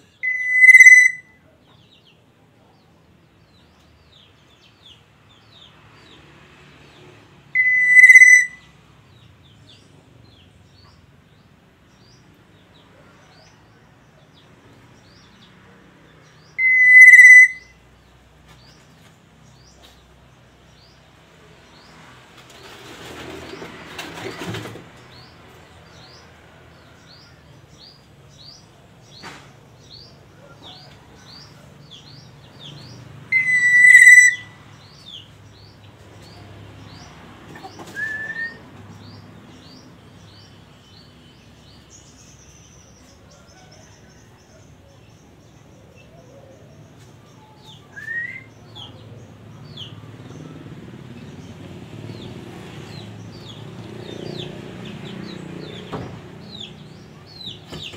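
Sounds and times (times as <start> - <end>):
oriole calling: 0.0 - 1.4, 7.5 - 8.7, 16.4 - 17.8, 30.4 - 35.3, 37.7 - 38.6.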